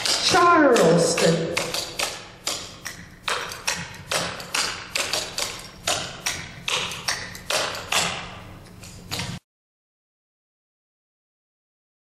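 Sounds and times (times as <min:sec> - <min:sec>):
tap shoes clicking on wooden floor: 0:00.0 - 0:08.2.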